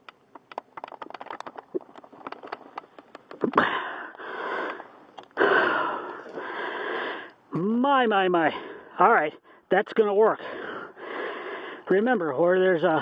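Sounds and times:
man breathing heavily: 0:03.4 - 0:07.5, 0:08.5 - 0:09.7, 0:10.4 - 0:11.9.

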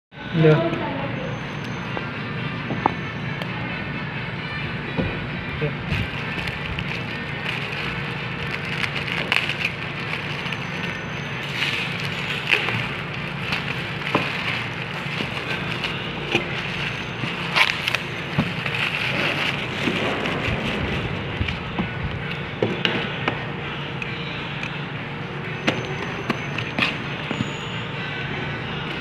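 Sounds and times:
steady low hum: 0:00.2 - 0:25.6
plastic bag crinkling: 0:05.9 - 0:21.6.

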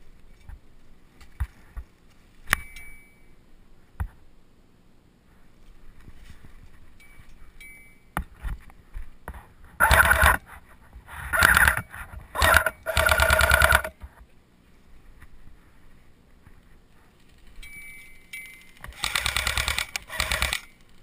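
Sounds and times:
airsoft gun full-auto bursts: 0:09.8 - 0:10.4, 0:11.3 - 0:11.8, 0:12.4 - 0:13.9, 0:18.9 - 0:20.8.

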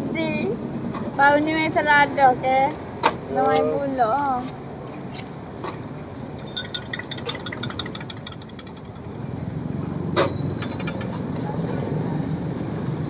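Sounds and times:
traffic hum: 0:00.0 - 0:13.0
spoon clinking in a cup: 0:06.2 - 0:09.2, 0:10.2 - 0:11.2
tea pouring: 0:06.3 - 0:09.1.

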